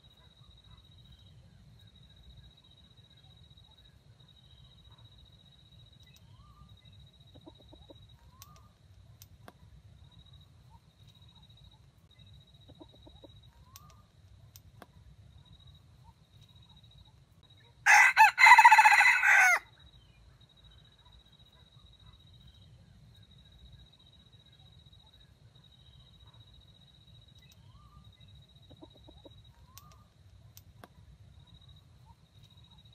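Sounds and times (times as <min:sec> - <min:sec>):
soft clucks: 0:07.2 - 0:08.8, 0:12.6 - 0:15.0, 0:28.6 - 0:31.0
rooster crowing: 0:17.8 - 0:19.7.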